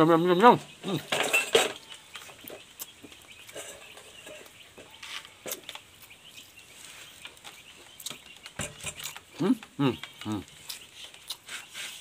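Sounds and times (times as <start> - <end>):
chicken clucking: 0.0 - 12.0
small clicks of eating: 7.2 - 11.7.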